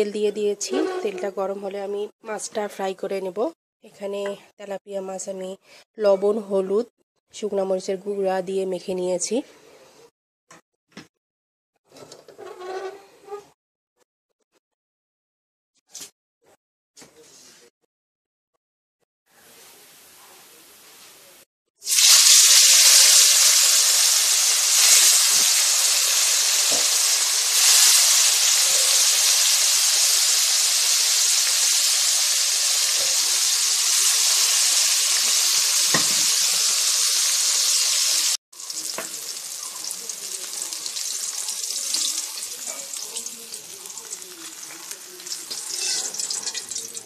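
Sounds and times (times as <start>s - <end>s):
fish sizzling in hot oil: 21.8s - 47.0s.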